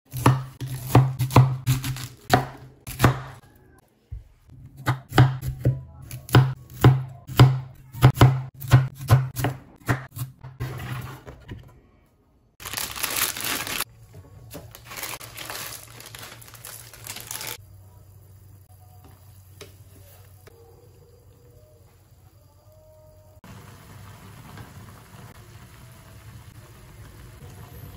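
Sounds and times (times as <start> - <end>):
rustling tearing noise: 12.6 - 13.9, 14.6 - 17.6.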